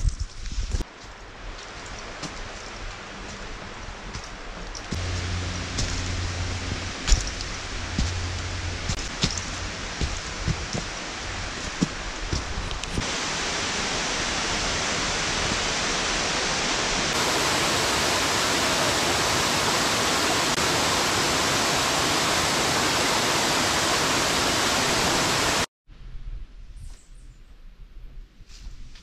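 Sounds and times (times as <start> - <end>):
waterfall rushing: 4.9 - 25.7.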